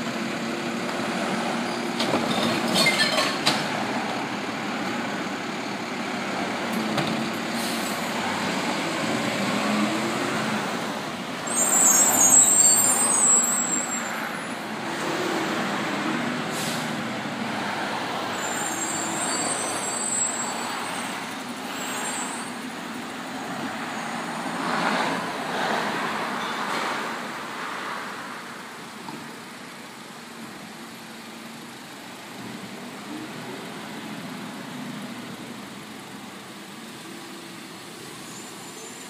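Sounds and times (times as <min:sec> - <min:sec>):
garbage truck diesel engine: 0:00.0 - 0:39.0
air brake hisses: 0:07.5 - 0:08.1, 0:16.5 - 0:17.0.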